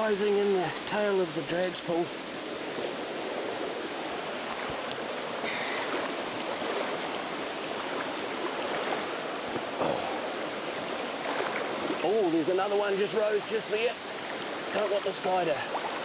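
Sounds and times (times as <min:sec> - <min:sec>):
river water rushing over rapids: 0:00.0 - 0:16.0.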